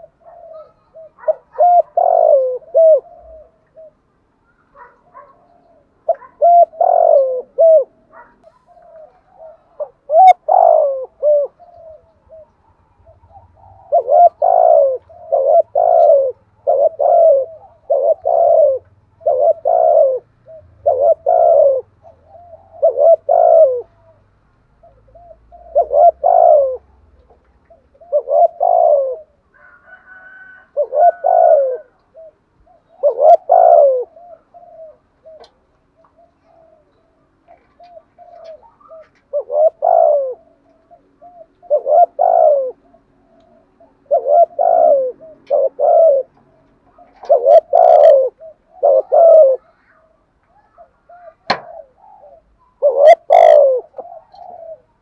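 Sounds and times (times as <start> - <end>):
dove cooing: 0.0 - 55.0.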